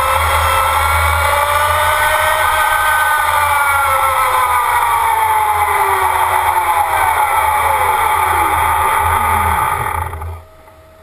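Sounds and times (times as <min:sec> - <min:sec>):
electric motor whining: 0:00.0 - 0:11.0.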